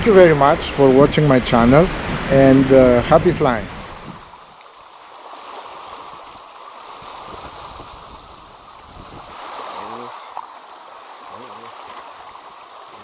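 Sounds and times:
wind buffeting microphone: 0:00.0 - 0:04.6, 0:05.3 - 0:10.2
waves lapping on rocky shore: 0:00.0 - 0:13.0.

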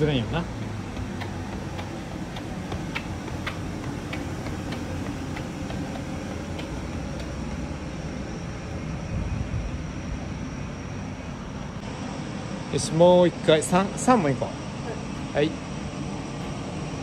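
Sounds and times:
footsteps on pavement: 0:00.0 - 0:08.8
low outdoor rumble: 0:00.0 - 0:17.0.

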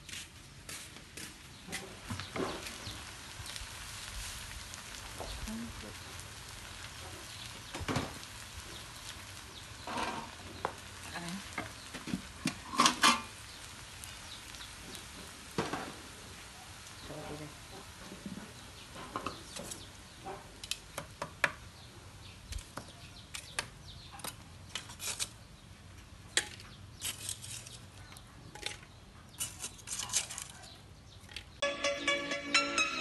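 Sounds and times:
metal spatula scraping wok: 0:09.8 - 0:10.4, 0:11.8 - 0:13.5, 0:26.4 - 0:30.6
electronic music: 0:31.6 - 0:33.0.

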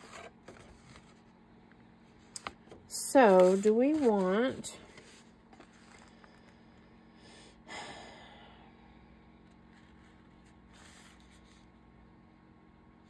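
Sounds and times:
person sighing: 0:07.3 - 0:08.8.

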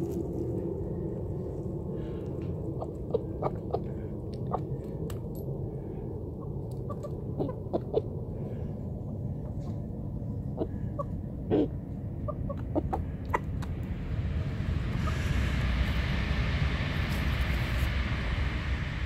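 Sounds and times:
low rumble: 0:00.0 - 0:19.0
chicken beak tapping ground: 0:12.3 - 0:13.8.

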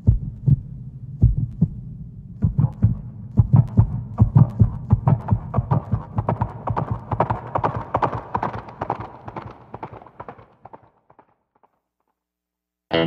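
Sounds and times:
horse hooves clopping: 0:05.0 - 0:11.3.

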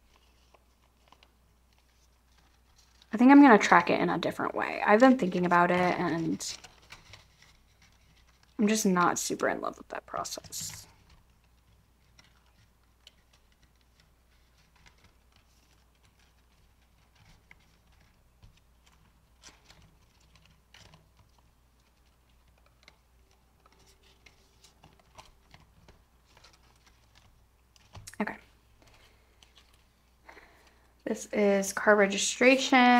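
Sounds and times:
plastic envelopes rustling: 0:00.0 - 0:31.1.

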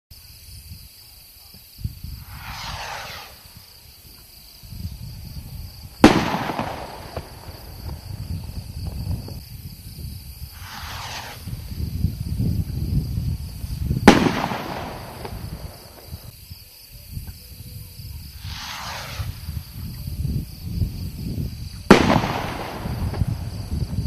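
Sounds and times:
firework rocket hissing: 0:00.3 - 0:16.5, 0:18.0 - 0:24.0
firework bursting bang: 0:01.9 - 0:09.4, 0:10.2 - 0:16.3, 0:18.4 - 0:24.0
firework launch pop: 0:02.3 - 0:03.4, 0:06.0 - 0:08.1, 0:10.6 - 0:11.5, 0:14.0 - 0:16.3, 0:21.9 - 0:23.9.

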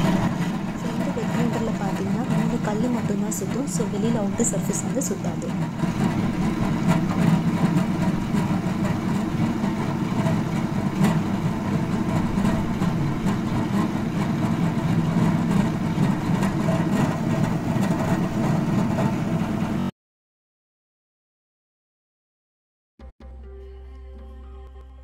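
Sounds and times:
wet grinder running: 0:00.0 - 0:19.9.

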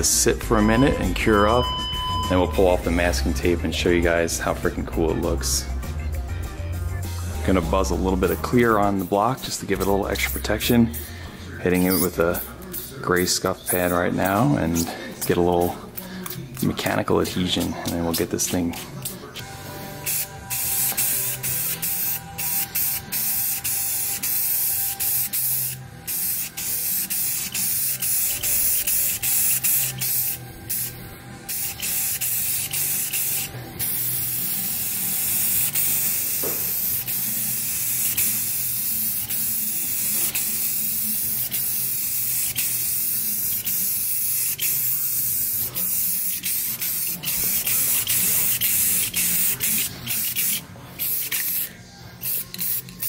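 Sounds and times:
aerosol spray can hissing: 0:20.0 - 0:53.0.

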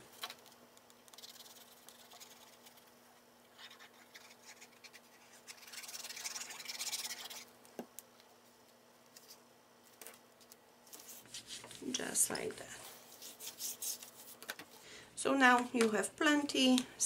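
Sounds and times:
glue nozzle scratching on paper: 0:01.1 - 0:02.9, 0:03.6 - 0:07.5.

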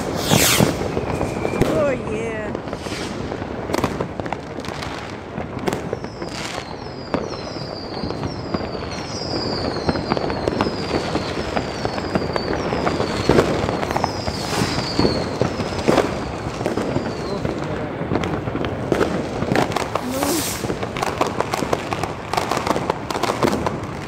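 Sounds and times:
high falling firework whistles: 0:00.0 - 0:04.0, 0:04.7 - 0:17.7, 0:19.0 - 0:24.0
firecrackers crackling: 0:00.0 - 0:24.0
firework bangs: 0:00.0 - 0:24.0.

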